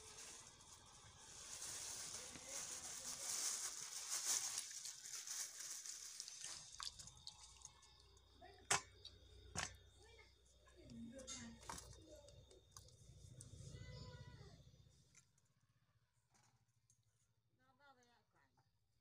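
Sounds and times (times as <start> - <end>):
plastic bag crinkling: 0.0 - 7.8
fish swishing in water: 3.9 - 8.0.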